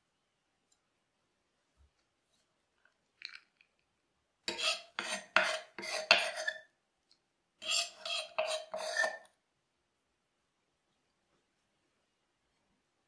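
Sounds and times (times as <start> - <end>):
knife chopping on wooden board: 4.5 - 6.5.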